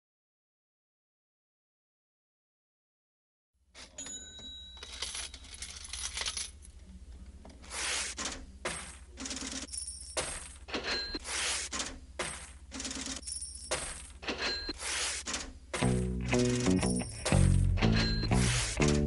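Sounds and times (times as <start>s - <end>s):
sharp clinks and rattles: 3.8s - 6.7s, 8.8s - 11.2s, 12.3s - 14.8s, 15.8s - 19.0s.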